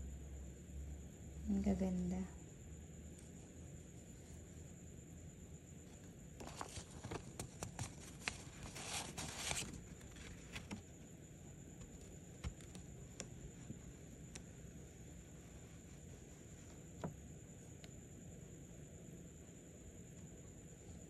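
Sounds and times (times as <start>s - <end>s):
paper banknotes crinkling: 6.4s - 10.8s.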